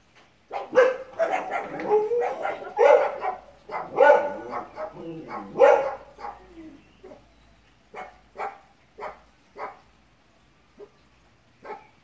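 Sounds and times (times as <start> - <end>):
dog barking: 0.5 - 7.2, 7.9 - 9.8, 11.6 - 12.0.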